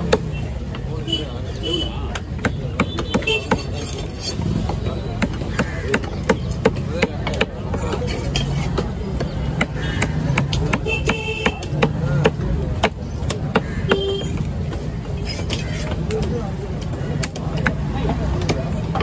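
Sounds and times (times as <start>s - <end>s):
cleaver chopping fish on wood: 2.1s - 4.4s, 5.2s - 14.8s.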